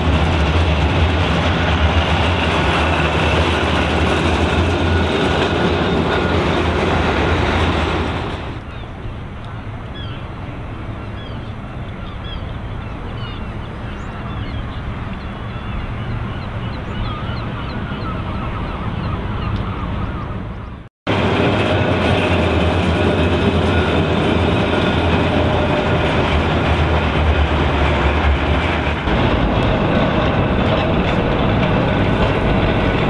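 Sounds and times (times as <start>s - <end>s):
tram rumbling on rails: 0.0s - 33.0s
birds chirping: 8.6s - 20.9s.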